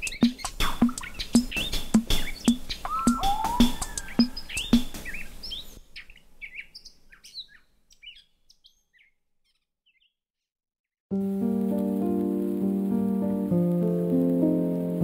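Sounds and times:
music with sustained layered tones: 0:00.0 - 0:05.2, 0:11.2 - 0:15.0
background music with beat: 0:00.0 - 0:05.3, 0:11.2 - 0:15.0
bird chirps: 0:00.0 - 0:10.2.

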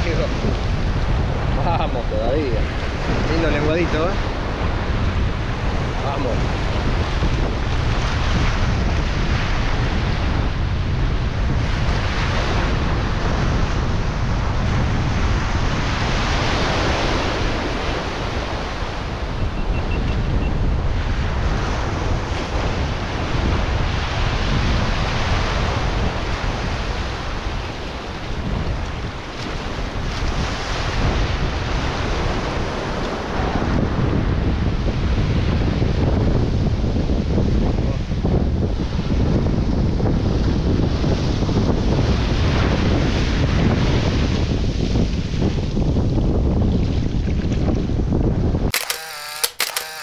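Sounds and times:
ocean surf breaking: 0:00.0 - 0:19.8, 0:20.6 - 0:36.0
wind buffeting microphone: 0:00.0 - 0:50.0.

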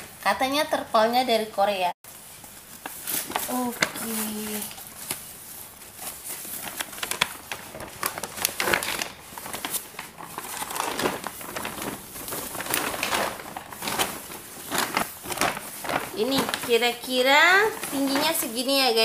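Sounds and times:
plastic tarpaulin crinkling: 0:02.1 - 0:19.0.

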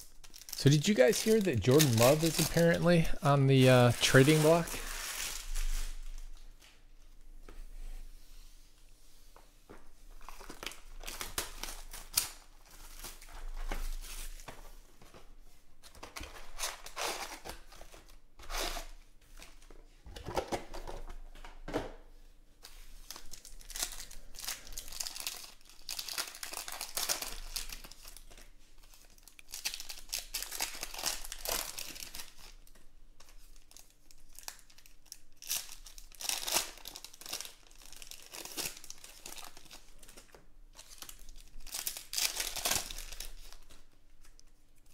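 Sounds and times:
foil wrappers crinkling and tearing: 0:00.0 - 0:06.4, 0:10.2 - 0:14.5, 0:15.9 - 0:19.0, 0:23.0 - 0:44.9.

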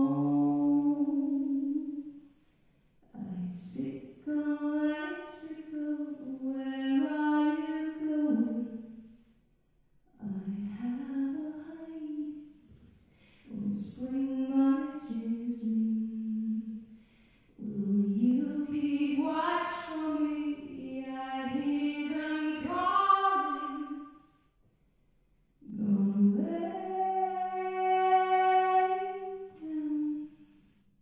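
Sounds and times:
woman singing into a microphone: 0:03.1 - 0:08.8, 0:10.2 - 0:12.4, 0:13.5 - 0:16.7, 0:17.6 - 0:24.0, 0:25.6 - 0:30.4.

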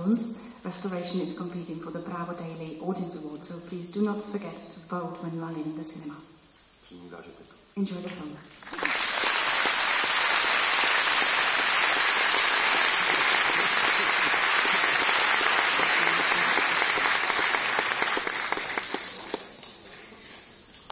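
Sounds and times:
audience applauding: 0:08.6 - 0:19.9.

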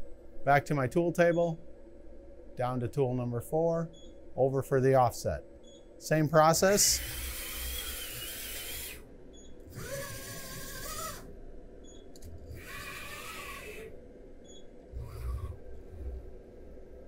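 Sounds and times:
machine motors whining: 0:06.7 - 0:17.0.

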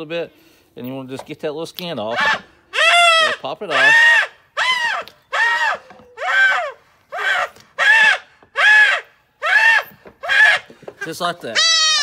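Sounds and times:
goat kid bleating in distress: 0:11.5 - 0:12.0.

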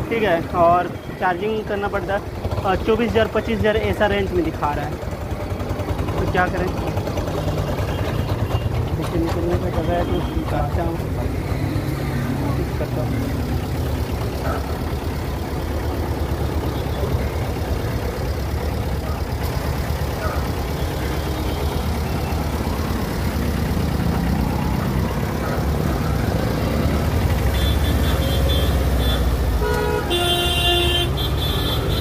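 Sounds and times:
vehicle engines idling: 0:00.0 - 0:32.0
car horn honking: 0:27.4 - 0:32.0.

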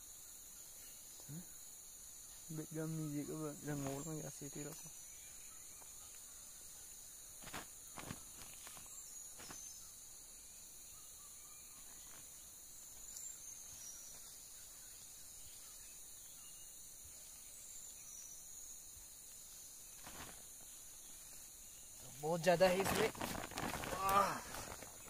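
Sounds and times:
hands digging in leaf mould: 0:22.6 - 0:25.0.

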